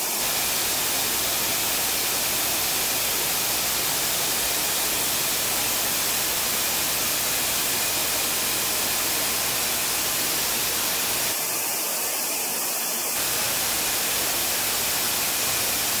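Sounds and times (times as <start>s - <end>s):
industrial machinery hissing: 0.0s - 16.0s.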